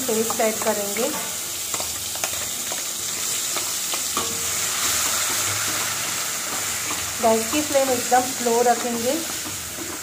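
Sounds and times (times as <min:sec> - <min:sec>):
paste sizzling in hot oil: 0:00.0 - 0:10.0
steel spoon scraping pan: 0:01.7 - 0:10.0.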